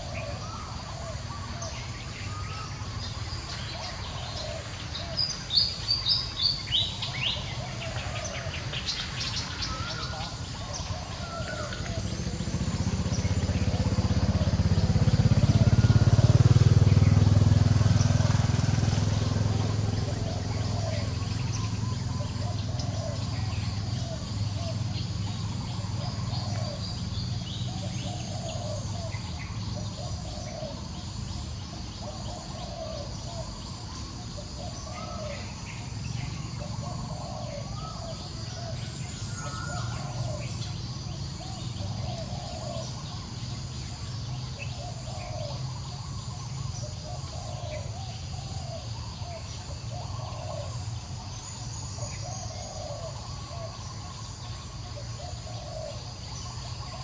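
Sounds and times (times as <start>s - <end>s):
bird calling: 0.0s - 57.0s
high insect drone: 0.0s - 57.0s.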